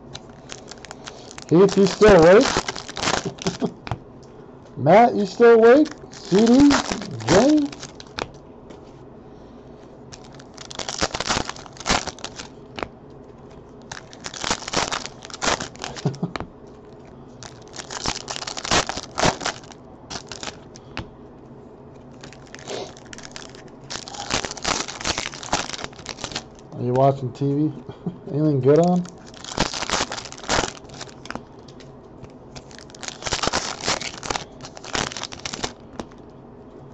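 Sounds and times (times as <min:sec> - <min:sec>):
foil wrappers crinkling and tearing: 0:00.0 - 0:04.0, 0:05.2 - 0:08.4, 0:10.1 - 0:12.9, 0:13.8 - 0:16.4, 0:17.3 - 0:21.0, 0:22.1 - 0:26.7, 0:28.8 - 0:31.8, 0:32.5 - 0:36.2.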